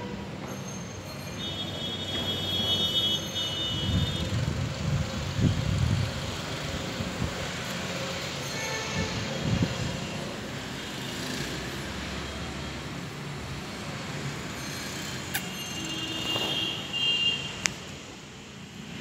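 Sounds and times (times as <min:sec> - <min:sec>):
steady background noise: 0:00.0 - 0:19.0
brief high-pitched squeal: 0:00.5 - 0:01.8, 0:14.5 - 0:16.6.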